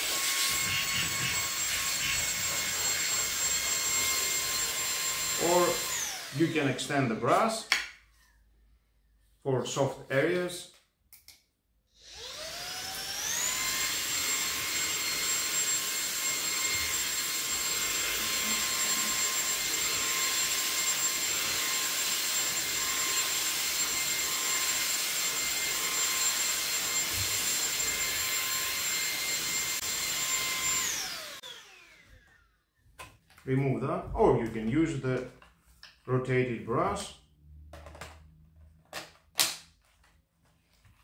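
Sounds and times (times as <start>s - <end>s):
stick vacuum motor whine: 0.0s - 6.7s, 12.0s - 32.6s.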